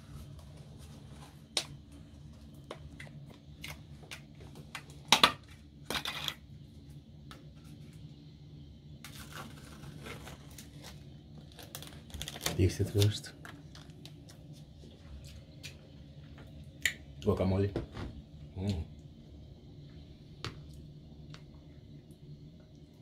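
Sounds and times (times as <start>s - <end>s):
plastic packaging crinkling: 9.0s - 14.5s.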